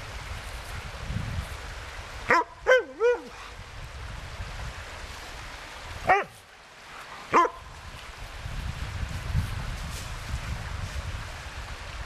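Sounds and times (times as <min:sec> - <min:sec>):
dog play barks and yips: 0:02.3 - 0:03.4, 0:06.1 - 0:06.4, 0:07.3 - 0:07.6.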